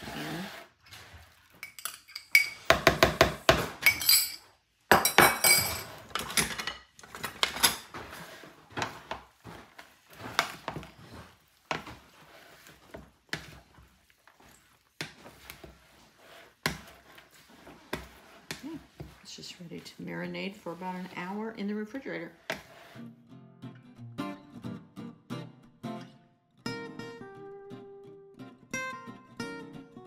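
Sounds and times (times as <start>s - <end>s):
spoon clinking on glass dish: 1.6s - 2.7s
wooden spoon tossing salsa: 7.0s - 23.0s.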